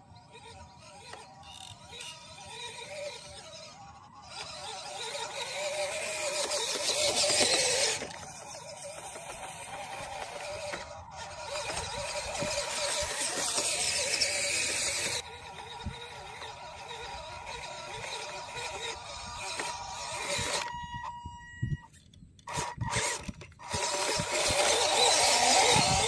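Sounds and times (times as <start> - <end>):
small electric motor whining: 0.0 - 26.0.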